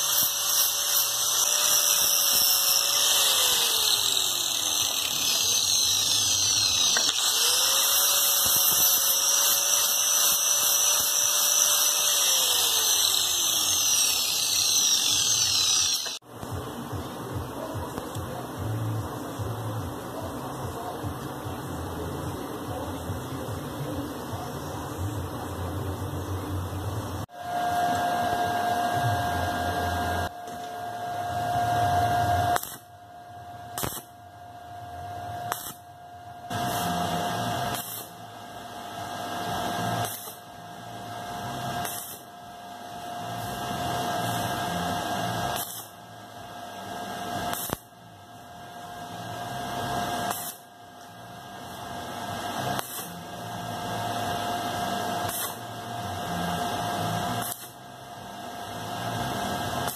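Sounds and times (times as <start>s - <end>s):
welding arc crackling and hissing: 0.0s - 16.6s, 31.6s - 32.9s, 33.8s - 34.2s, 35.4s - 35.8s, 36.5s - 42.5s, 43.2s - 59.9s.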